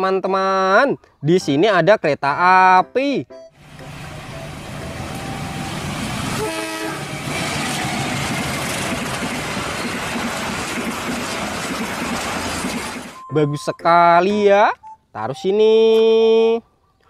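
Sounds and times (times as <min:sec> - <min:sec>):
locomotive horn blast: 0:03.6 - 0:07.8
train engine and wheels rumbling: 0:03.6 - 0:13.2.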